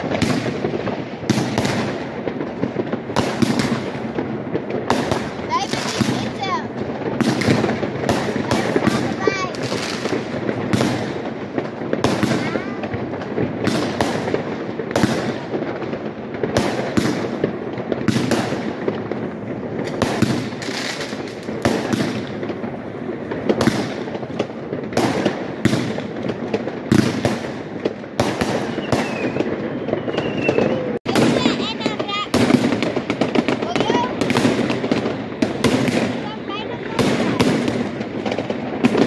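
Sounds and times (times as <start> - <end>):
fireworks bangs: 0.0 - 39.0
fireworks crackling: 0.0 - 39.0.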